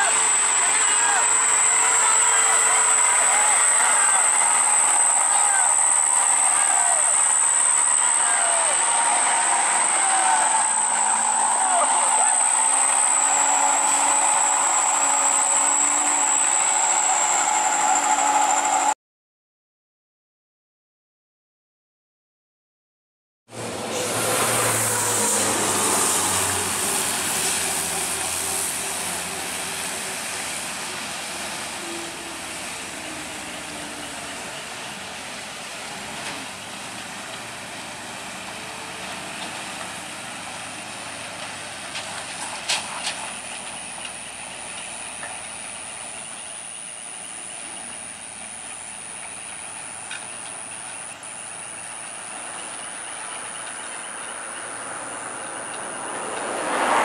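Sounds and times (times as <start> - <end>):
truck and motorbike engines climbing: 0.0 - 17.7, 23.5 - 57.0
thin high-pitched tone: 0.0 - 19.0
steady hiss: 23.8 - 56.6.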